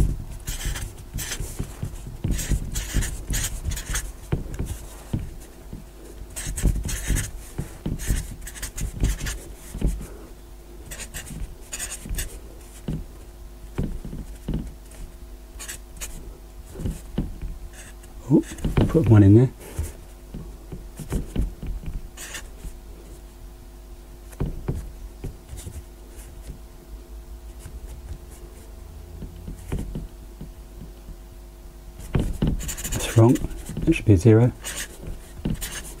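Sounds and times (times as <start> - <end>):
low room hum: 0.0 - 36.0
marker pen writing on board: 0.4 - 10.1, 10.9 - 13.0, 15.6 - 19.2, 22.2 - 22.7, 29.5 - 30.0, 32.0 - 34.0, 34.6 - 36.0.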